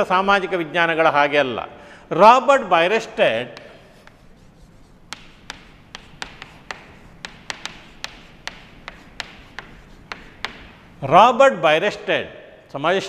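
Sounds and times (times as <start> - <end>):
chalk tapping on a chalkboard: 3.3 - 10.9.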